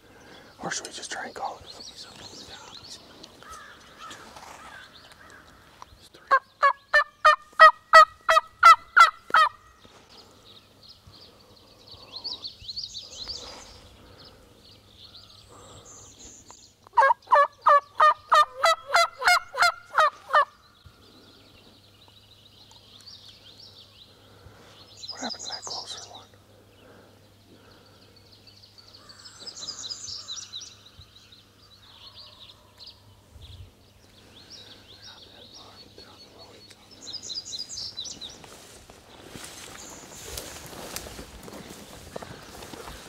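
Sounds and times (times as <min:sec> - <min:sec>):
faint songbird chirps: 0:00.0 - 0:07.2, 0:08.8 - 0:18.0, 0:20.2 - 0:43.0
turkey yelping: 0:06.3 - 0:09.6, 0:17.0 - 0:20.5.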